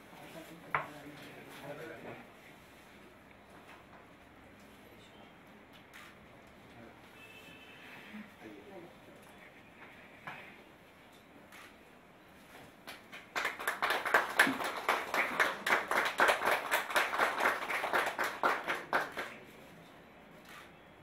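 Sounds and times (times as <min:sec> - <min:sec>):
people clapping: 0:12.8 - 0:19.5.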